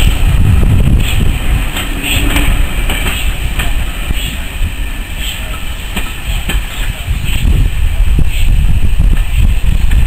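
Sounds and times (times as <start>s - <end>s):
train wheels rumbling on track: 0.0s - 10.0s
sharp clicks of wheels on rails: 1.0s - 4.4s, 5.2s - 7.6s.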